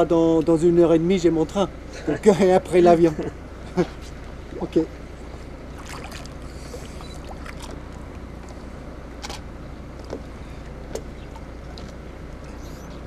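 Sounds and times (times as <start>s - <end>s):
steady low rumble: 0.0s - 13.0s
water sloshing and splashing: 5.3s - 9.4s, 10.9s - 12.8s.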